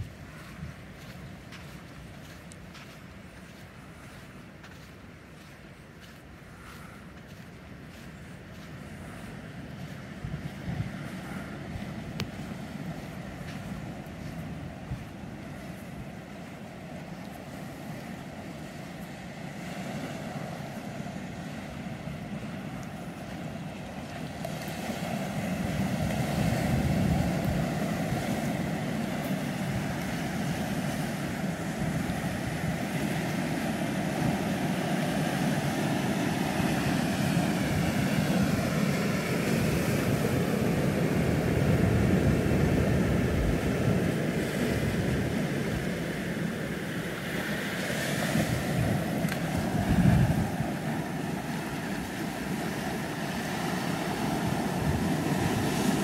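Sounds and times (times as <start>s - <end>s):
wind on microphone: 0.0s - 2.4s, 8.3s - 18.6s, 24.3s - 56.0s
ocean surf breaking on beach: 0.0s - 56.0s.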